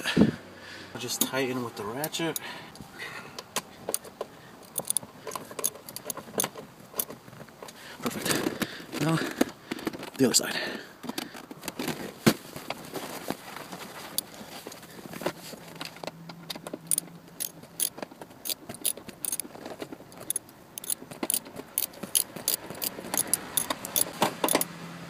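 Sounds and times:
hand ratchet clicking: 0:03.9 - 0:07.2, 0:16.9 - 0:19.5, 0:20.1 - 0:24.7.

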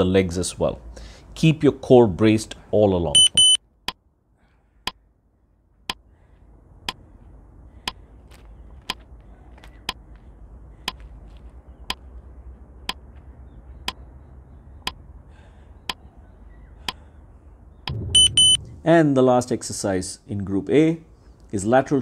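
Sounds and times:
faint low rumble: 0:17.7 - 0:19.2
timer ticking: 0:17.9 - 0:18.7.

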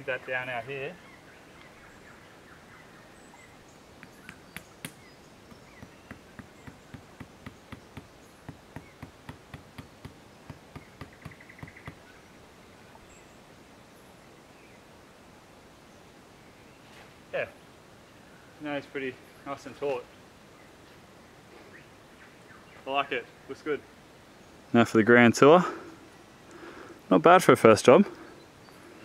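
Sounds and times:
tent peg being hammered: 0:04.0 - 0:12.0.

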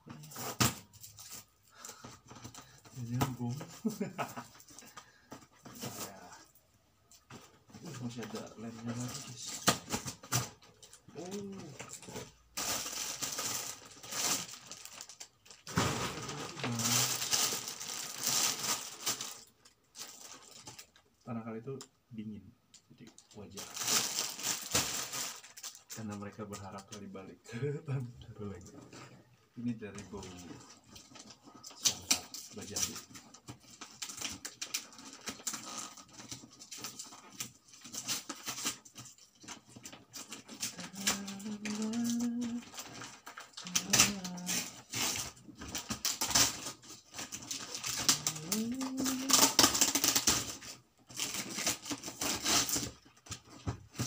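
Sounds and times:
plastic wrapping crinkling: 0:00.1 - 0:21.1, 0:23.0 - 0:27.2, 0:29.6 - 0:54.0
man humming: 0:40.8 - 0:42.7, 0:48.1 - 0:49.6.

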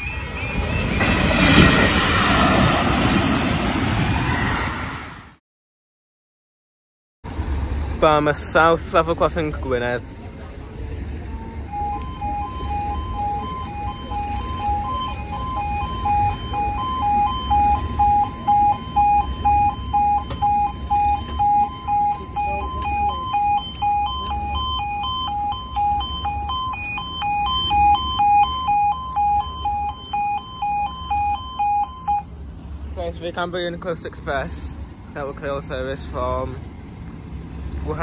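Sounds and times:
level crossing alarm warbling: 0:00.0 - 0:03.0, 0:11.4 - 0:32.3.

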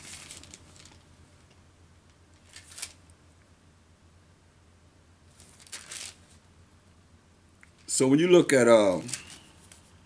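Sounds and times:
paper page turning: 0:00.0 - 0:01.0, 0:02.3 - 0:03.0, 0:05.3 - 0:06.4, 0:08.9 - 0:09.9
faint room hum: 0:00.0 - 0:10.0.

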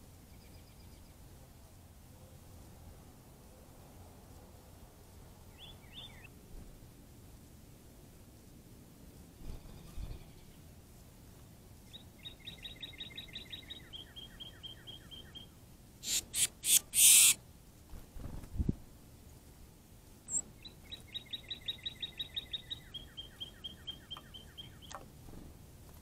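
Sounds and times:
songbird trilling: 0:11.9 - 0:17.4, 0:20.3 - 0:25.0.

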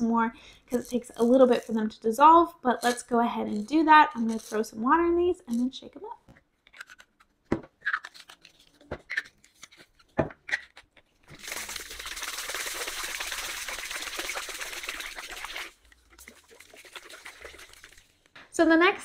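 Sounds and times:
tap water running: 0:11.3 - 0:18.1.

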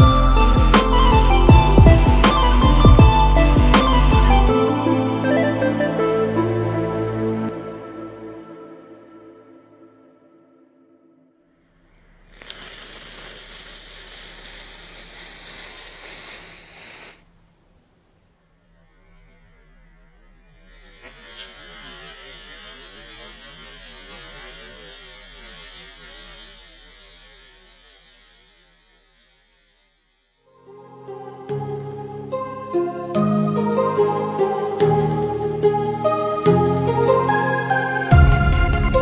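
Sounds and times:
burning fuse hissing: 0:11.9 - 0:17.7, 0:19.3 - 0:30.8.

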